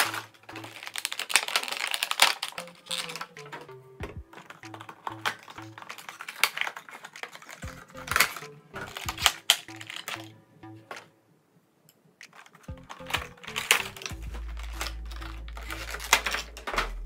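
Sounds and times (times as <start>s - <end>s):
plastic packaging crinkling: 0.0s - 3.7s, 4.3s - 10.3s, 12.2s - 17.0s
background music: 0.0s - 11.5s, 12.4s - 17.0s
steady bass: 4.0s - 5.3s, 7.6s - 10.8s, 12.7s - 17.0s.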